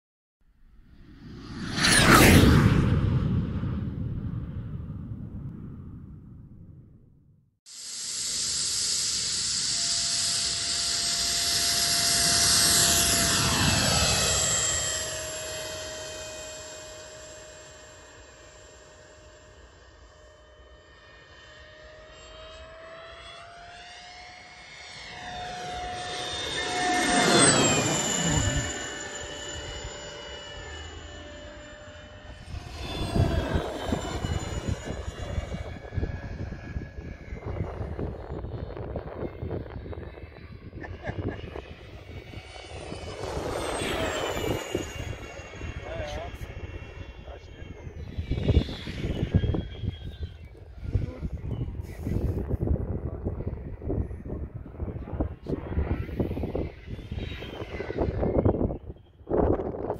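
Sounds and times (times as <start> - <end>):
gusty low rumble: 0.6 - 7.6, 32.2 - 59.9
electric fan whine: 7.8 - 59.9.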